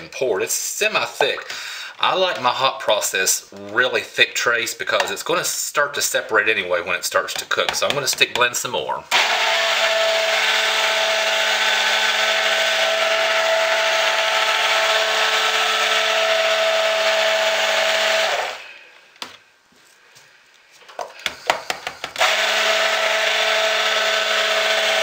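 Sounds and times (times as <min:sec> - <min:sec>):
stick blender running: 0:09.1 - 0:18.8, 0:21.2 - 0:25.0.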